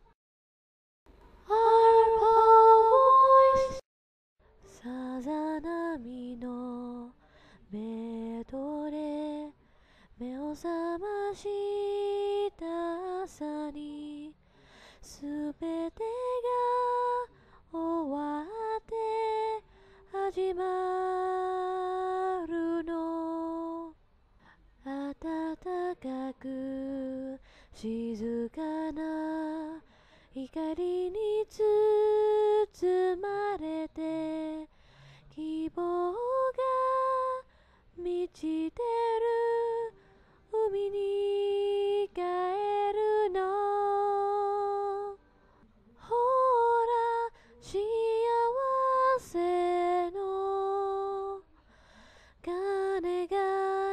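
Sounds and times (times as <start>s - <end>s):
woman singing gently: 1.4s - 3.8s, 35.3s - 45.2s.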